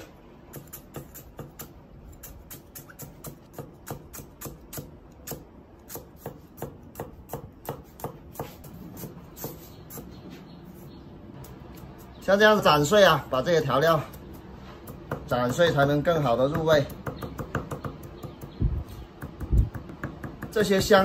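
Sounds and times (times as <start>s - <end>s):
cleaver chopping on wooden block: 2.5s - 10.1s, 16.4s - 18.5s.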